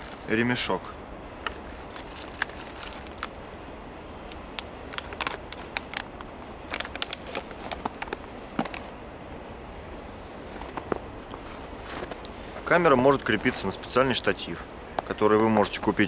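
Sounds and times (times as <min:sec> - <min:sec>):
plastic packaging crinkling: 0:00.0 - 0:00.3, 0:01.4 - 0:03.4, 0:04.3 - 0:08.9.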